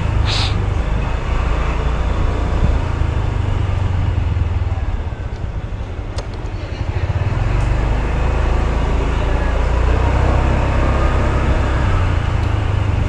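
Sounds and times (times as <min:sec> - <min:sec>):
road traffic noise: 0:00.0 - 0:13.0
short hiss: 0:00.2 - 0:00.6
wind rumble on microphone: 0:02.2 - 0:04.2.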